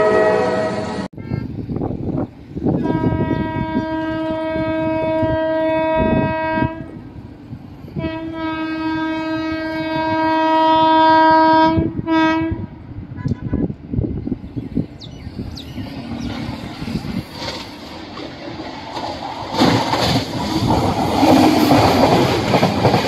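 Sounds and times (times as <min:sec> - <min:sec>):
locomotive horn blasts: 0:00.0 - 0:01.6, 0:02.8 - 0:07.0, 0:08.0 - 0:13.8
running train rumble: 0:00.0 - 0:23.0.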